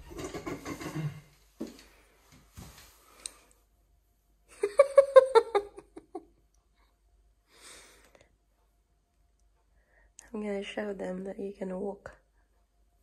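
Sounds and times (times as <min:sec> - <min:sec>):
person giggling: 0:04.5 - 0:06.4.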